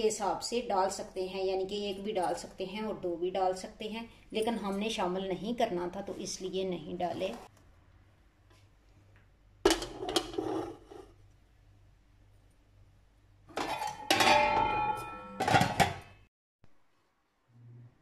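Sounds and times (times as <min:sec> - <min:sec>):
cake tin clattering in metal pot: 0:13.5 - 0:16.1
metal lid clanking on pot rim: 0:13.5 - 0:16.1.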